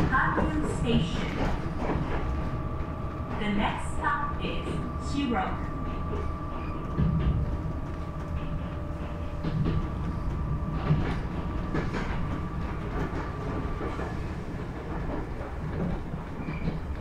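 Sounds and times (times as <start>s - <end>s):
steady train whine: 0.0s - 17.0s
train wheels rumbling on rails: 0.0s - 17.0s
wheels clicking over rail joints: 5.8s - 17.0s.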